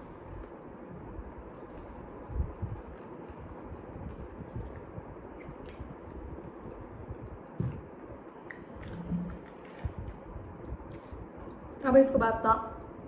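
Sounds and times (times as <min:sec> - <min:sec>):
wet mouth clicks: 0:03.9 - 0:06.8, 0:08.4 - 0:11.1.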